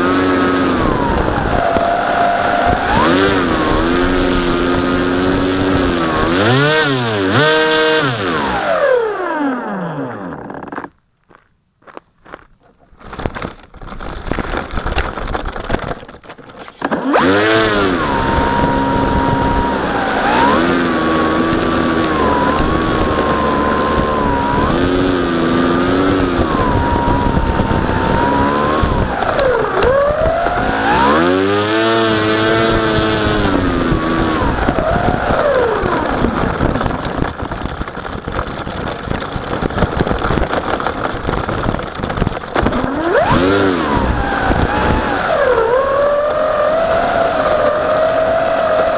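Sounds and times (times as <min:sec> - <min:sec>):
electric motor whine: 0:00.0 - 0:10.8, 0:16.9 - 0:37.9, 0:42.4 - 0:48.9.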